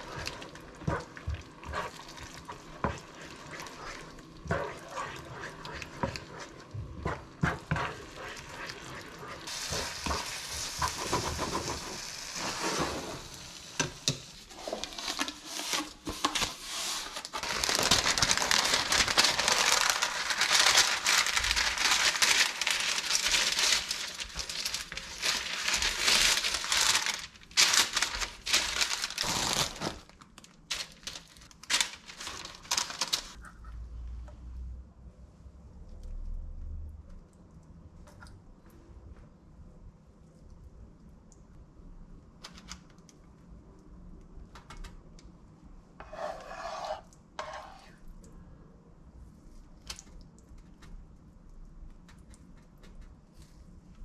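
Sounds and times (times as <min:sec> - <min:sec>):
spatula stirring meat in pan: 0:00.0 - 0:17.2, 0:46.0 - 0:48.0
baking paper crinkling: 0:00.0 - 0:33.4.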